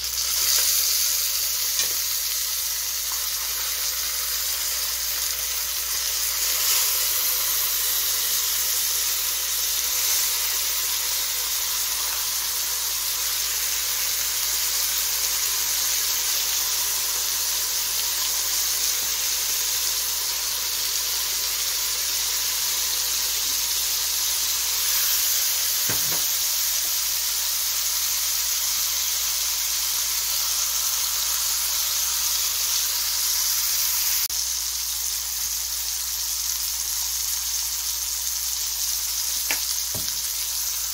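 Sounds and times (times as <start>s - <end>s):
fish sizzling in a frying pan: 0.0s - 40.9s
knock: 25.9s - 26.3s, 39.5s - 40.2s.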